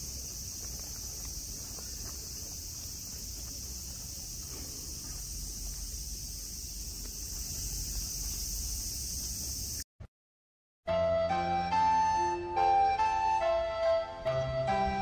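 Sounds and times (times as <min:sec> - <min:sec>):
cicadas droning: 0:00.0 - 0:09.8.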